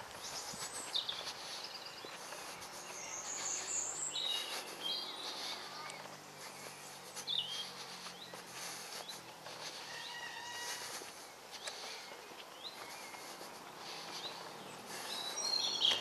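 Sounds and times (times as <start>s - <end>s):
footsteps on dirt path: 0.0s - 16.0s
songbirds singing and calling: 0.0s - 16.0s
bird trill: 9.8s - 10.9s.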